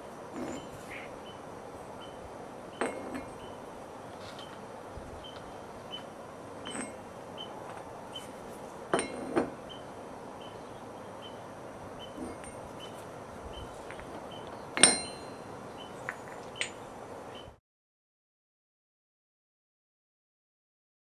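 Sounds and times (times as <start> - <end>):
metal clinking on anvil: 2.8 - 3.6, 6.6 - 7.1, 8.9 - 9.5, 14.8 - 15.5.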